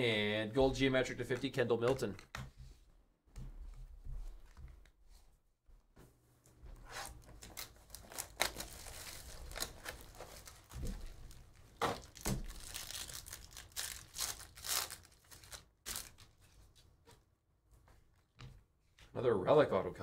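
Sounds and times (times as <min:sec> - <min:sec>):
foil wrapper tearing and crinkling: 0:07.4 - 0:16.3.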